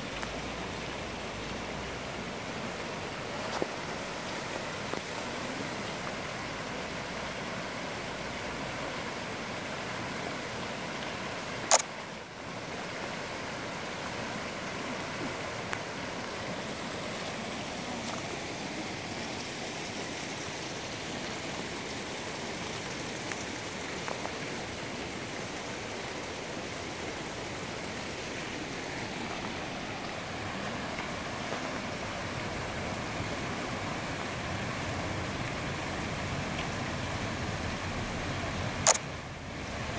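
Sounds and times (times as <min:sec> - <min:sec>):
stream rushing over rocks: 0:00.0 - 0:39.9
sharp click: 0:38.8 - 0:39.0.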